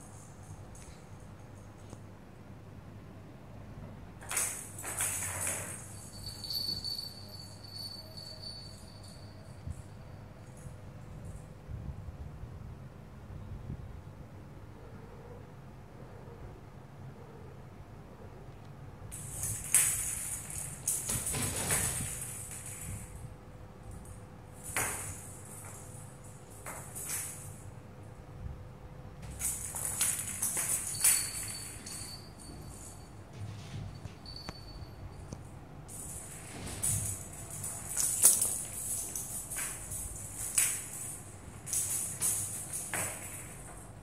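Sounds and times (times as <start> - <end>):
faint steady ringing: 4.2 - 11.7, 19.1 - 44.0
toy ball bell jingling: 4.3 - 10.7, 29.3 - 33.2, 34.2 - 44.0.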